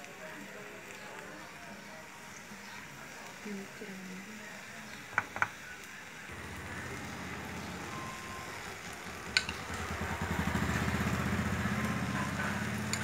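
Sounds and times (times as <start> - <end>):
small engine pulsing drone: 6.3 - 13.0.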